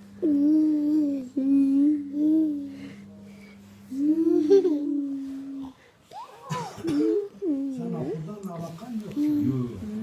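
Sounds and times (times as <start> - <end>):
low steady hum: 0.0 - 10.0
child humming: 0.2 - 3.0, 3.9 - 8.0.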